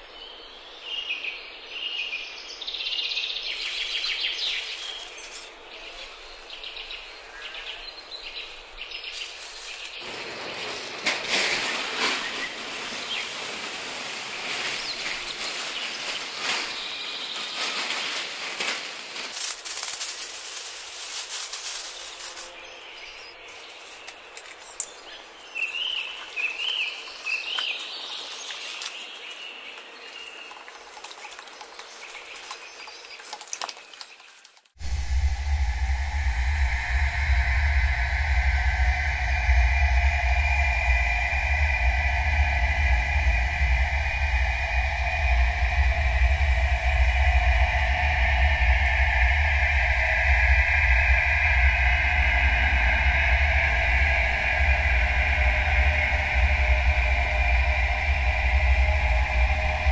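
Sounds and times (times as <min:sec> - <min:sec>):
loud rustling noise: 0:09.2 - 0:22.7.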